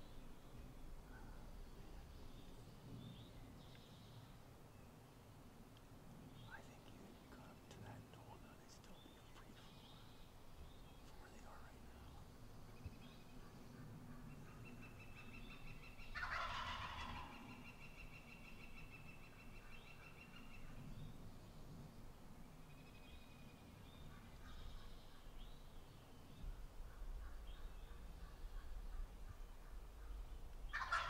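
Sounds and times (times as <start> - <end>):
distant bird calls: 0.0 - 31.0
turkey gobbling: 16.1 - 17.4, 30.7 - 31.0.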